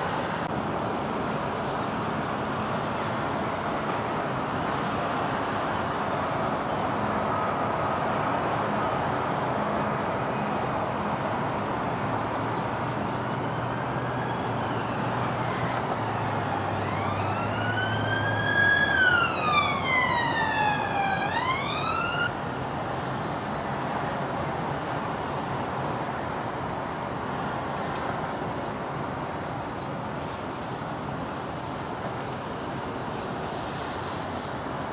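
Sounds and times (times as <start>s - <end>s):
road traffic noise: 0.0s - 34.9s
emergency vehicle siren wailing: 13.0s - 22.3s.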